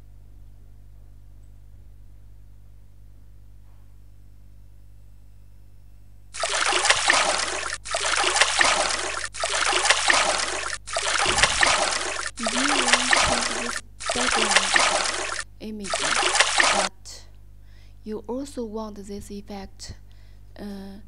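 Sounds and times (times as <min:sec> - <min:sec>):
water trickling and splashing: 0:06.4 - 0:16.9.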